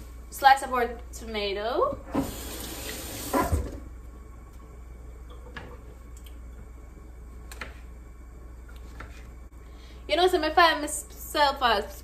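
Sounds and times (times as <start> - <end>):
tap water running: 2.0 - 3.9.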